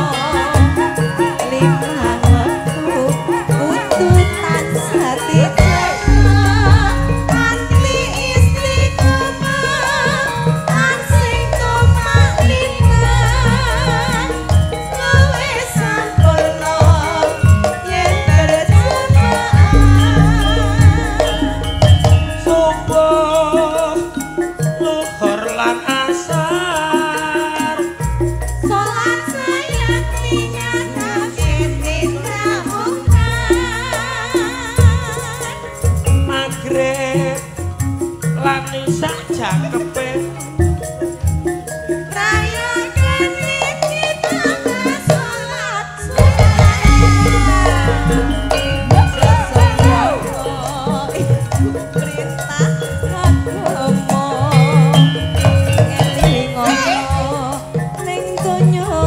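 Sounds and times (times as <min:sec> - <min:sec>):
woman singing: 0:00.0 - 0:40.4, 0:42.1 - 0:59.0
gamelan and drums: 0:00.0 - 0:59.0
deep low ringing stroke: 0:05.6 - 0:09.2, 0:19.7 - 0:24.2, 0:46.8 - 0:51.8
deep bass line: 0:05.6 - 0:10.0, 0:19.6 - 0:24.9, 0:46.4 - 0:52.0
man singing: 0:22.4 - 0:28.0, 0:36.2 - 0:37.6, 0:38.3 - 0:40.4, 0:46.4 - 0:55.0, 0:56.0 - 0:57.7.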